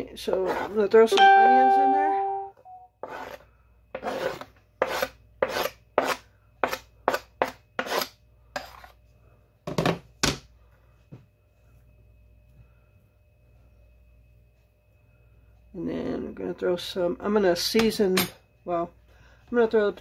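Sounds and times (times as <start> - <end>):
spoon scraping a cutting board: 0.2 - 0.9, 3.0 - 3.4, 4.0 - 9.0.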